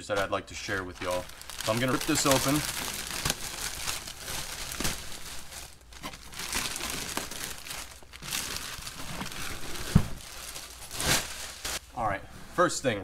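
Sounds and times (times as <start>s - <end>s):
plastic packaging ripping and crinkling: 0.1s - 11.9s
thump: 9.9s - 10.2s.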